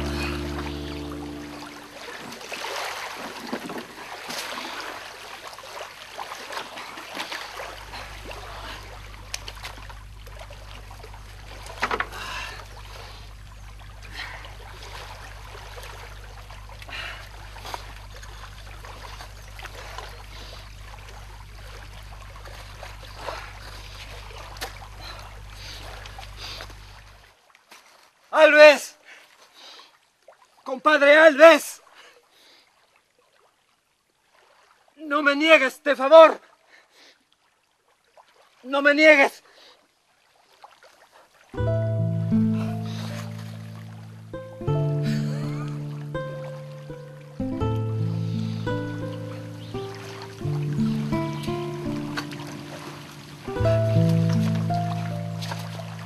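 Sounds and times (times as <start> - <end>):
low steady hum: 0.0 - 27.3, 41.6 - 56.0
river water lapping at shore: 0.0 - 56.0.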